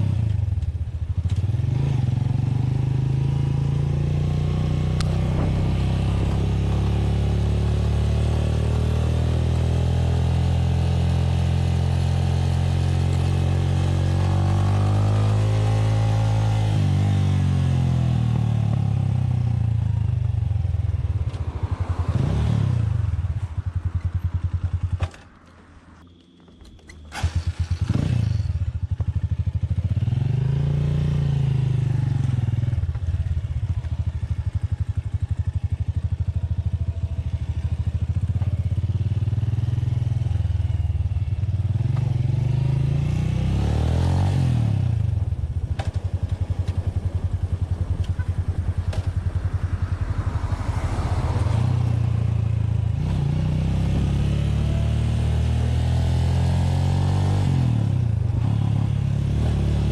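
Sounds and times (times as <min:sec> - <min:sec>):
motorcycle engine revving: 0:00.0 - 0:25.2, 0:27.1 - 0:59.9.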